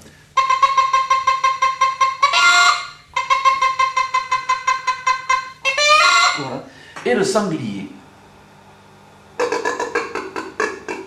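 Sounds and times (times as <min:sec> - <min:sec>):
deer call imitating hen clucks: 0:00.4 - 0:06.6, 0:09.4 - 0:11.0.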